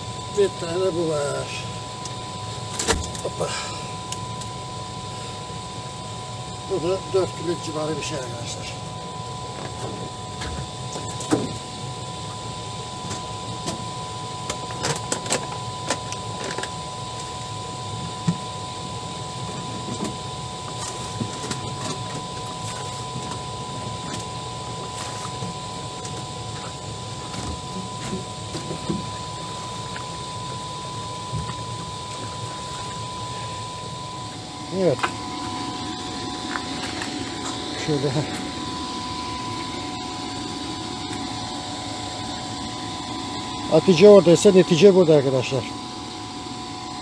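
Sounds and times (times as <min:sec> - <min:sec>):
steady hum: 0:00.0 - 0:47.0
thin high tone: 0:20.7 - 0:47.0.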